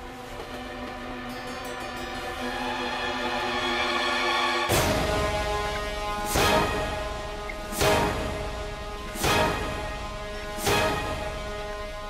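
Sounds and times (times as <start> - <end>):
sustained music chords: 0.0 - 12.0
loud swelling music hit: 2.4 - 12.0.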